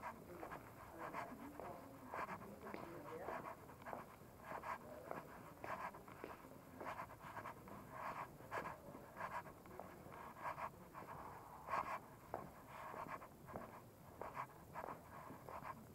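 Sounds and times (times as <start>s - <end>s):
faint street background: 0.0s - 15.9s
footsteps on cobblestones: 1.6s - 7.7s, 12.3s - 15.6s.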